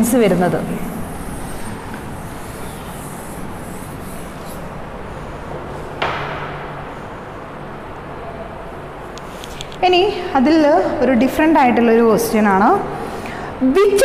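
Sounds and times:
faint hum: 0:00.0 - 0:14.0
sharp knock: 0:06.0 - 0:06.7.

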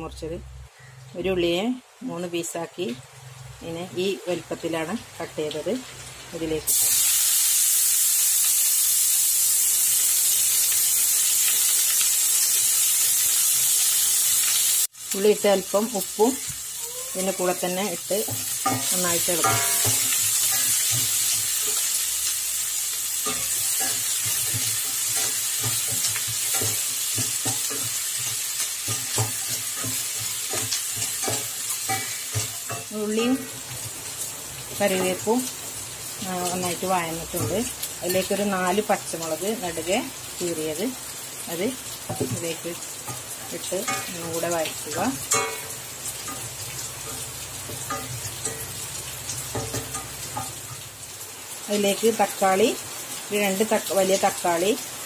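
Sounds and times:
onions sizzling in oil: 0:00.0 - 0:55.0
spatula knocking and scraping pan: 0:18.2 - 0:21.9, 0:23.2 - 0:34.0, 0:42.1 - 0:44.3, 0:45.2 - 0:48.8, 0:49.4 - 0:50.8.

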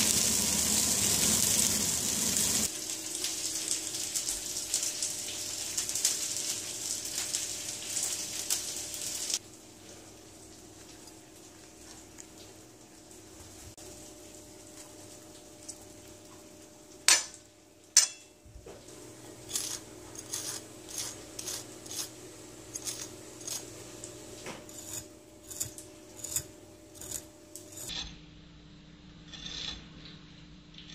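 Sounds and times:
cutlery clinking on plate: 0:18.0 - 0:18.3.

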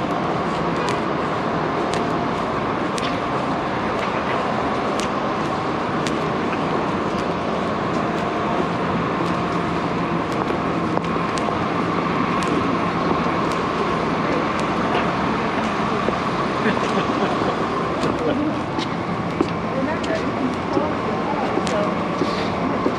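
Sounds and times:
constant hum: 0:00.0 - 0:22.9
traffic noise: 0:00.0 - 0:22.9
light ticks: 0:06.0 - 0:07.3.

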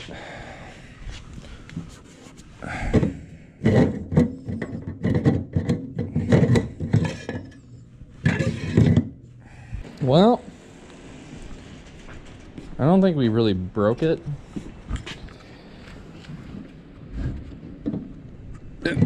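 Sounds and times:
hard objects knocking and scraping: 0:02.8 - 0:09.2.

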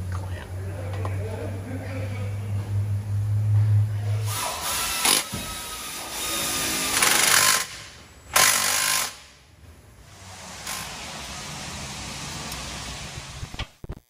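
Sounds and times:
impact wrench hammering: 0:04.3 - 0:09.3.

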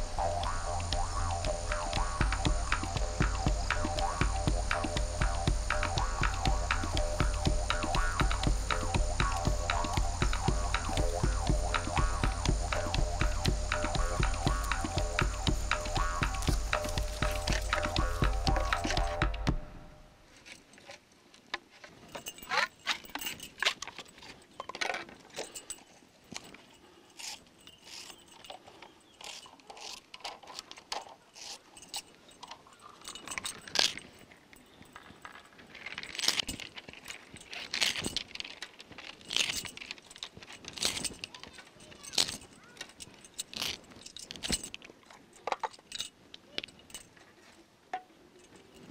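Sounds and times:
music: 0:00.0 - 0:20.0
rustles and scrapes: 0:20.2 - 0:48.9.

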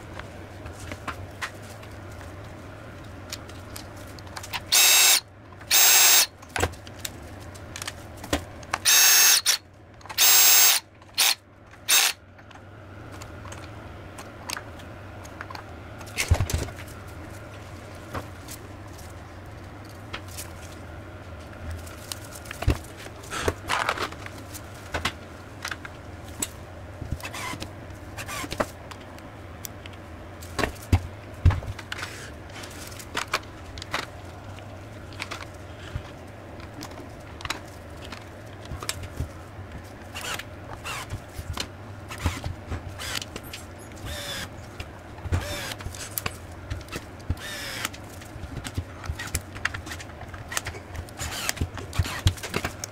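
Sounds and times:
low steady hum: 0:00.0 - 0:52.9
tool parts clicking and scraping: 0:08.6 - 0:12.2.

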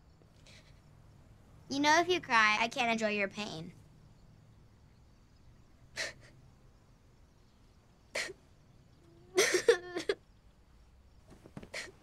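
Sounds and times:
boy whimpering sob: 0:06.0 - 0:06.3, 0:09.1 - 0:10.2
boy sniffling: 0:06.0 - 0:06.4, 0:08.1 - 0:08.4, 0:11.6 - 0:12.0.

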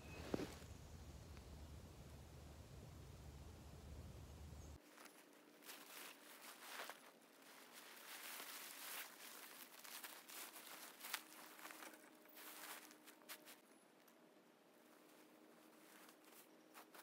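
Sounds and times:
faint rustling and crackles: 0:00.0 - 0:01.8, 0:04.8 - 0:17.0
low rumble: 0:00.0 - 0:04.8.

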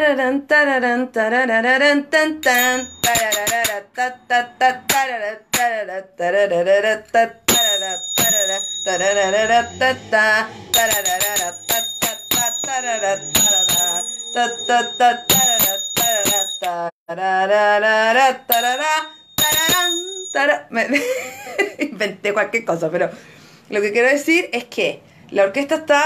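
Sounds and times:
woman singing wordless melody: 0:00.0 - 0:21.1
finger cymbals clinking: 0:02.4 - 0:03.8.

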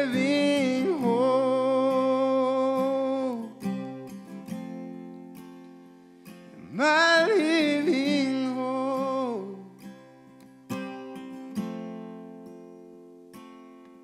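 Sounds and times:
person singing with vibrato: 0:00.0 - 0:04.0, 0:06.5 - 0:09.9
acoustic guitar strumming: 0:00.0 - 0:14.0.

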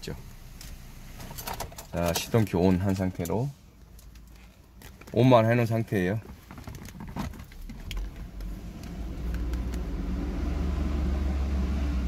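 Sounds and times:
low steady rumble: 0:00.0 - 0:04.7, 0:07.3 - 0:12.0.

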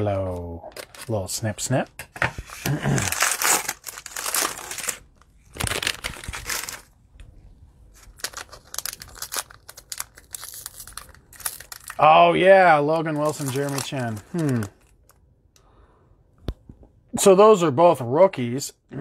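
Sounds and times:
plastic wrapper crinkling: 0:02.9 - 0:07.0, 0:07.9 - 0:15.3.

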